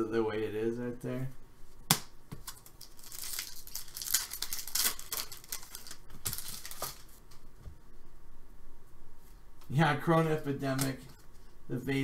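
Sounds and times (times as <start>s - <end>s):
wrapper tearing and crinkling: 2.4s - 7.2s.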